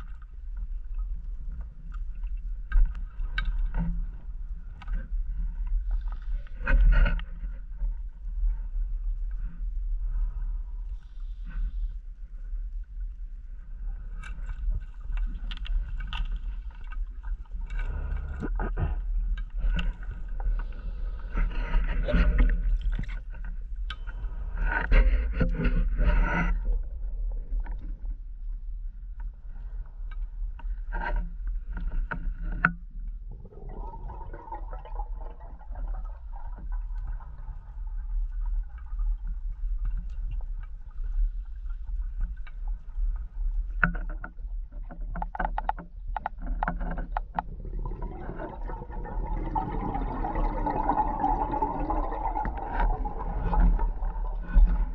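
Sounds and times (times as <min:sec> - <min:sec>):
underwater low rumble: 0:00.0 - 0:54.9
exhaled breath bubbling: 0:33.3 - 0:37.2, 0:47.5 - 0:54.9.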